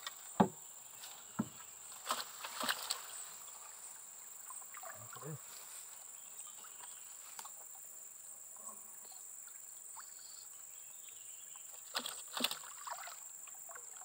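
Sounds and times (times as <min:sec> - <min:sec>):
insects droning: 0:00.0 - 0:14.0
sharp knocks: 0:00.4 - 0:00.6.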